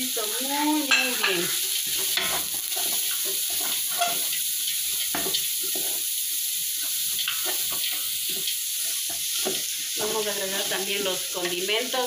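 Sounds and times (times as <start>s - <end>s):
onion and garlic sizzling: 0.0s - 12.0s
wooden spoon scraping pot: 1.3s - 6.0s.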